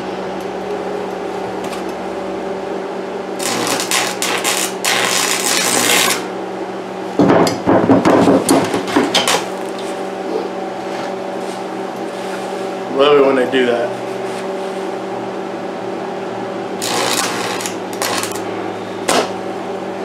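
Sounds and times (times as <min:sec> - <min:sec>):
steady electrical hum: 0:00.0 - 0:20.0
welding arc crackling and hissing: 0:03.4 - 0:06.3, 0:16.8 - 0:19.3.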